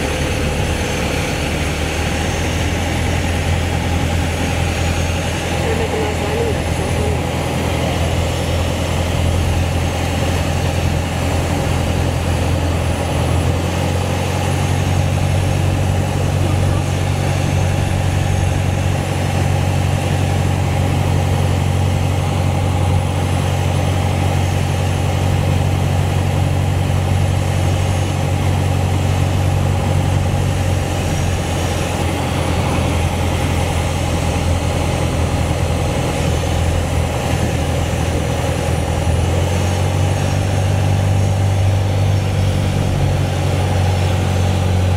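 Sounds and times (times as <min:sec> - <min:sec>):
propeller engine droning: 0:00.0 - 0:44.9
rush of air in cabin: 0:00.0 - 0:44.9.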